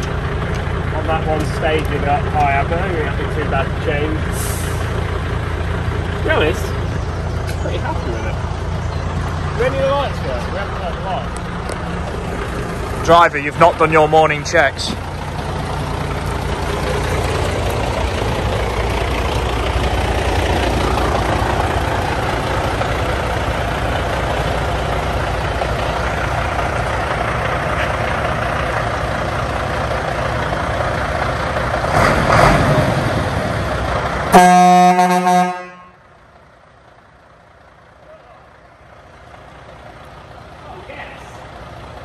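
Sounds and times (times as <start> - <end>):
diesel truck engine idling: 0.0 - 42.0
truck horn blast: 34.3 - 36.1.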